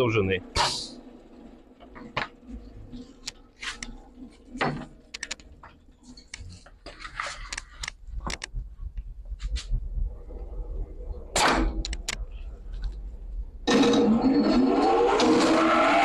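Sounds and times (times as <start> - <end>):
low hum: 0.0 - 15.2
plastic knocks clicks and scrapes: 4.6 - 8.6.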